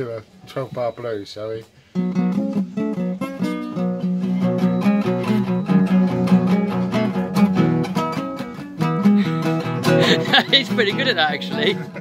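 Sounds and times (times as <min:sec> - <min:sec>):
nylon-string acoustic guitar blues: 0:01.7 - 0:12.0.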